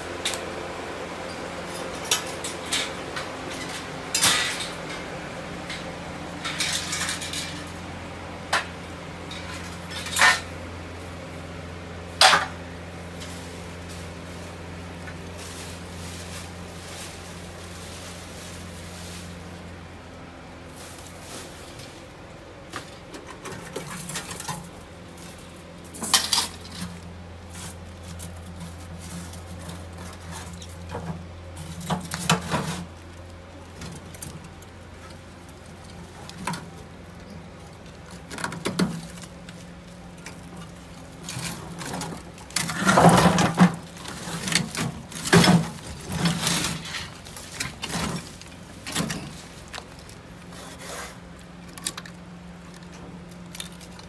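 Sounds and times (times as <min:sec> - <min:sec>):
scrap metal clanking: 0:01.4 - 0:07.8, 0:08.5 - 0:10.6, 0:22.8 - 0:33.0, 0:40.3 - 0:49.9.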